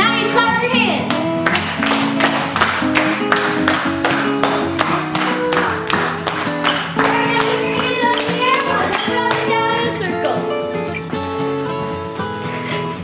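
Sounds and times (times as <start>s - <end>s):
claps on the beat: 1.0s - 11.0s
upbeat dance music: 3.5s - 10.6s.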